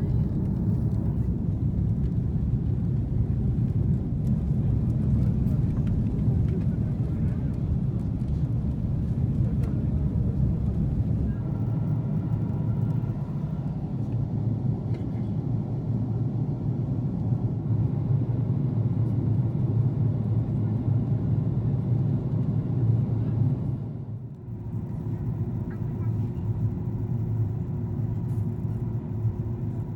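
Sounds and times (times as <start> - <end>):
engine and airflow rumble: 0.0 - 29.9
faint steady whine: 8.4 - 16.0.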